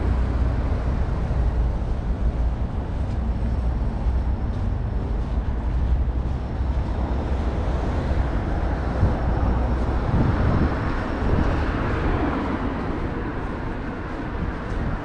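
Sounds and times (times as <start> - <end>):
low traffic rumble: 0.0 - 15.0
vehicle passing close by: 4.7 - 15.0.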